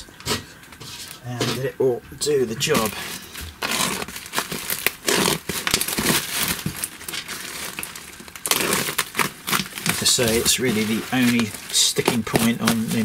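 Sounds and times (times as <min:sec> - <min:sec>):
plastic wrapping crinkling: 0:00.2 - 0:13.0.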